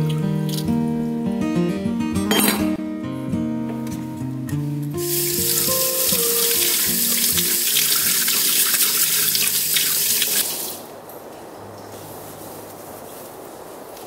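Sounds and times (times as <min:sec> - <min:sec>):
tap water spraying into sink: 0:05.0 - 0:10.8.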